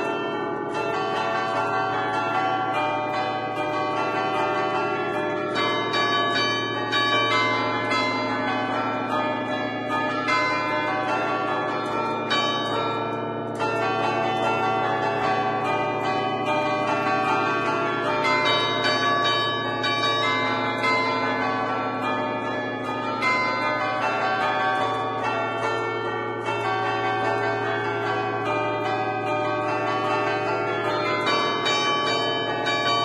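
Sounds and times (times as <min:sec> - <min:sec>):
church bells ringing: 0:00.0 - 0:33.0.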